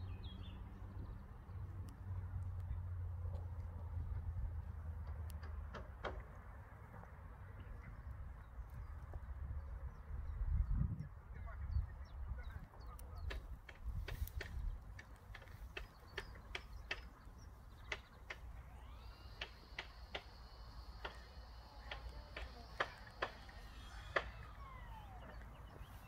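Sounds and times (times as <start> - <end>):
wind rumble on microphone: 7.8 - 15.0
faint high whine: 18.6 - 26.0.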